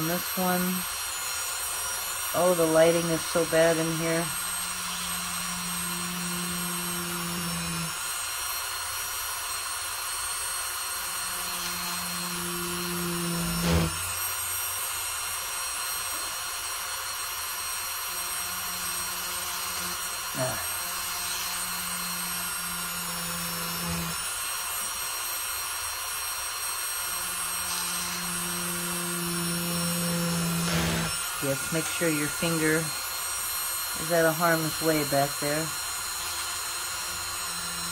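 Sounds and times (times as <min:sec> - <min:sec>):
rotary tool drilling: 0:00.0 - 0:37.9.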